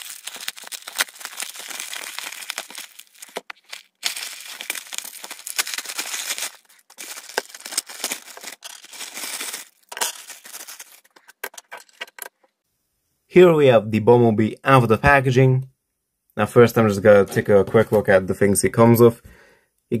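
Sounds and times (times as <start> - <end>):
plastic package tearing and crinkling: 0.0 - 12.3.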